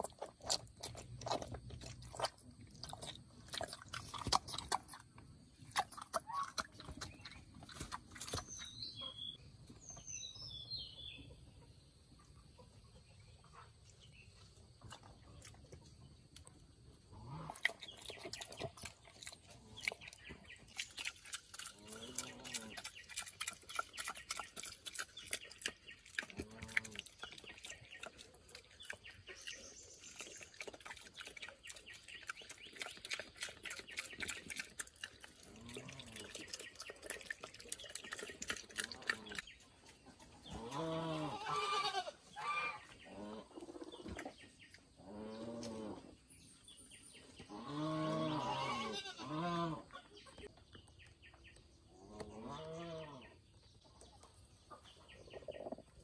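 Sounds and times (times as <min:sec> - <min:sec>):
farm animal calling: 0:05.7 - 0:09.4, 0:17.1 - 0:46.2, 0:47.3 - 0:50.5, 0:51.3 - 0:53.4.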